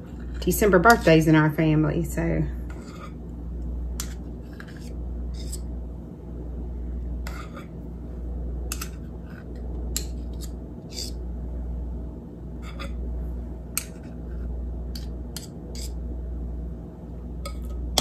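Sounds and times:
steady low hum: 0.0s - 18.0s
metal spoons clicking and scraping: 8.7s - 11.2s, 14.9s - 16.0s.

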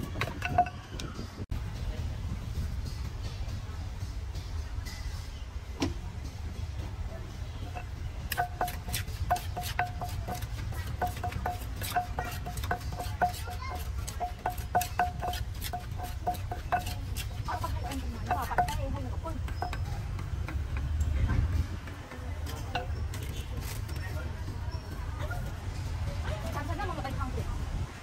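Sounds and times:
pestle pounding in clay mortar: 0.0s - 0.8s, 7.7s - 24.1s.

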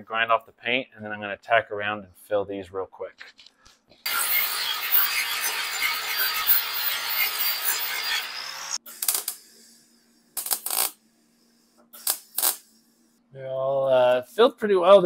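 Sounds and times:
welder arc crackling: 4.0s - 9.6s, 10.4s - 11.0s, 12.0s - 12.8s
tack weld bursts: 4.1s - 9.8s, 10.4s - 11.0s, 11.9s - 12.8s.

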